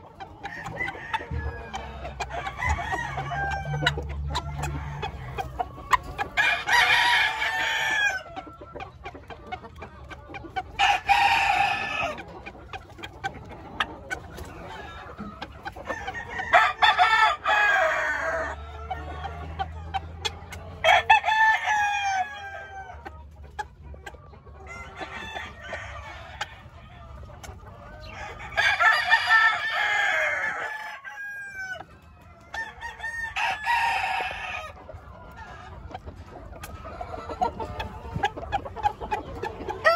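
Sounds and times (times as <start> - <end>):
roosters crowing: 0.0 - 8.8, 10.6 - 12.4, 14.4 - 23.3, 24.6 - 39.9.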